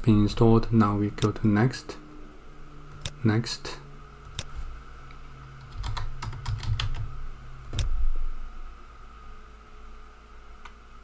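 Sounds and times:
computer keyboard typing: 5.6 - 7.1.

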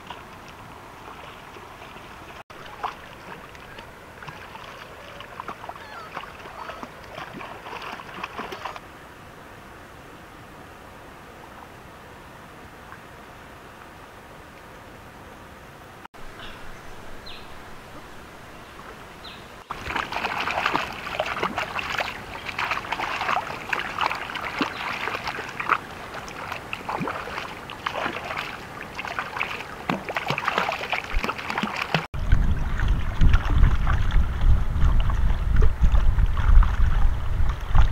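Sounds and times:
hands splashing river water: 0.0 - 8.8, 19.7 - 37.9
wind rumble on microphone: 32.2 - 37.9.

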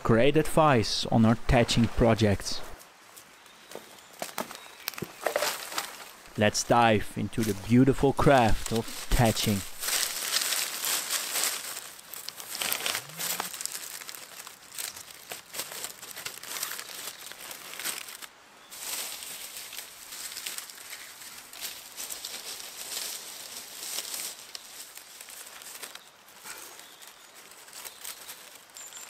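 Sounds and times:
dry reed stalks rustling: 2.8 - 6.4, 7.4 - 29.0.

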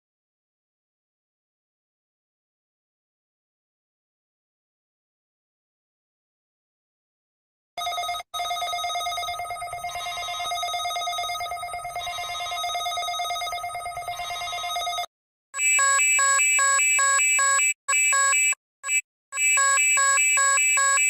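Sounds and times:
rapidly alternating alarm beeps: 7.8 - 21.0
steady electronic alarm tone: 7.8 - 21.0.

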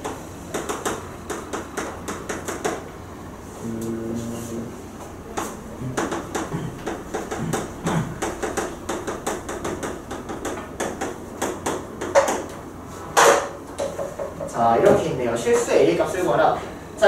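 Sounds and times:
chalk tapping on a chalkboard: 0.0 - 2.8, 5.4 - 12.6, 13.2 - 15.0.

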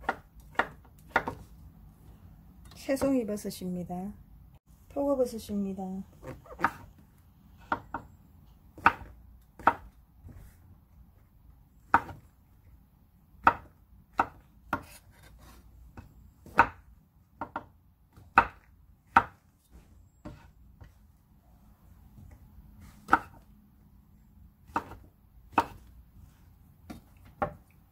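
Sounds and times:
knife chopping on wooden board: 0.0 - 1.5, 6.2 - 6.9, 8.7 - 10.5, 11.9 - 12.2, 13.4 - 16.8, 17.4 - 19.4, 22.8 - 23.4, 24.6 - 25.9.

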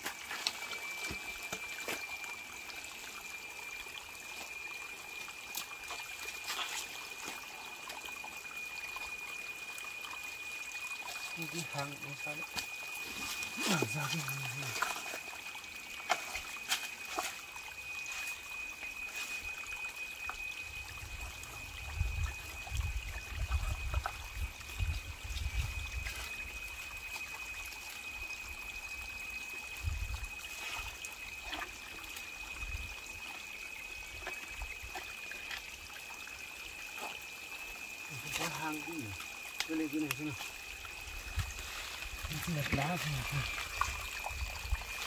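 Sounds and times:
water trickling among rocks: 0.0 - 45.0
high-pitched whine: 8.3 - 34.9.

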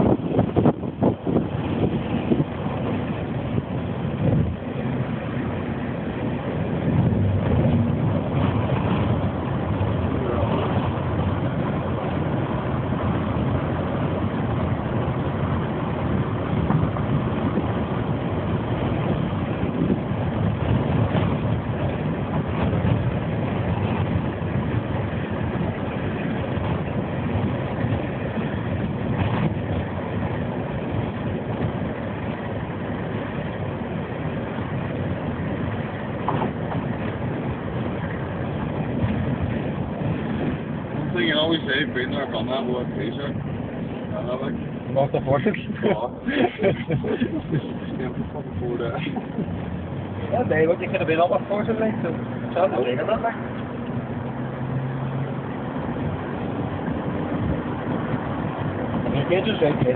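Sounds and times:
car road noise drone: 0.0 - 59.9.

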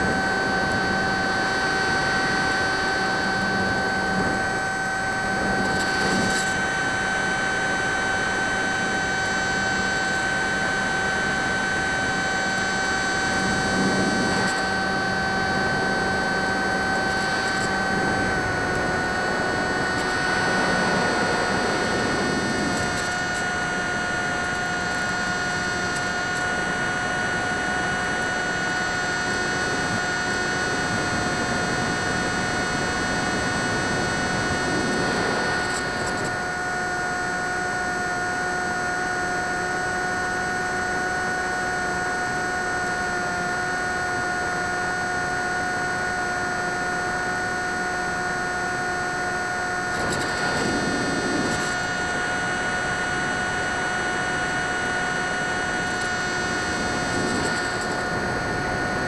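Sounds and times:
electric motor propeller whine: 0.0 - 59.0
wind rush: 17.0 - 23.6, 33.1 - 35.8.

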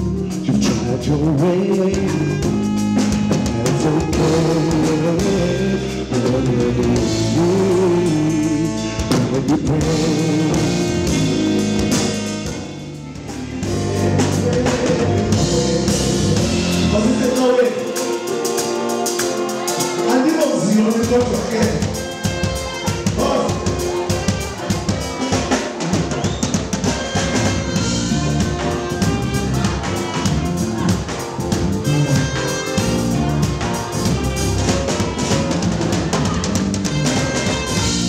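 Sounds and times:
drum kit: 0.0 - 38.0
electric bass: 0.0 - 38.0
keyboard: 0.0 - 38.0
male singer: 0.2 - 2.7, 3.3 - 11.2, 13.7 - 18.0, 20.1 - 21.9, 23.2 - 23.8.

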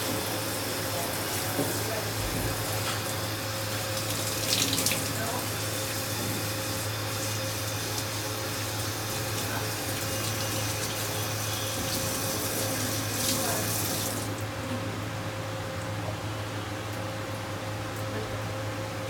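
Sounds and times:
hose spraying water on dog: 0.5 - 14.4
water splashing in metal tub: 2.4 - 6.1.

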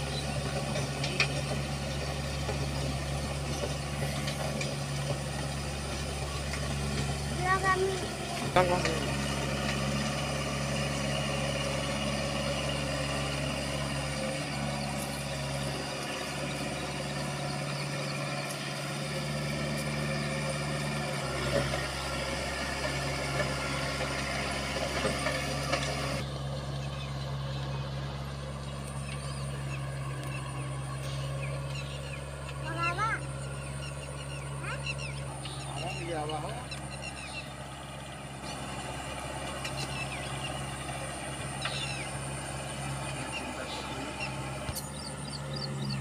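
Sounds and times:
tractor engine humming: 0.0 - 46.0.

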